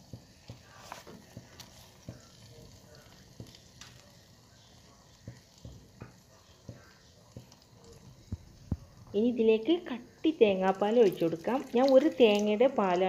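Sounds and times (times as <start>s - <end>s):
light clicks and crackles: 0.5s - 4.1s.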